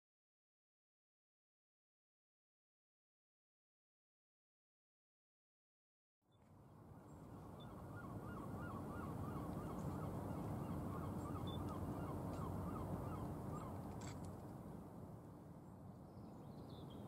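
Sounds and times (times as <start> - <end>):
faint hum: 6.4 - 17.0.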